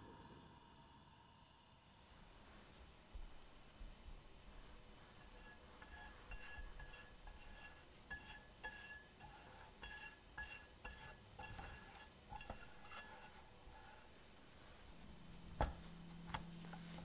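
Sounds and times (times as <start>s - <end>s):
brush clinking on frying pan: 5.0s - 14.1s.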